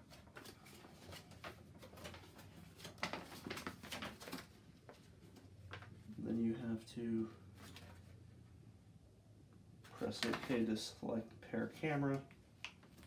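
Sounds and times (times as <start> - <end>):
paper rustling: 0.0 - 6.2, 9.8 - 10.8.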